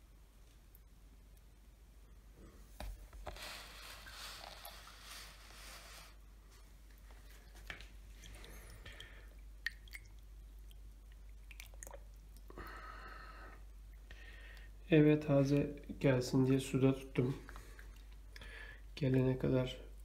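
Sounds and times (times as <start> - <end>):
small wet clicks and knocks: 6.9 - 12.5, 17.2 - 19.3.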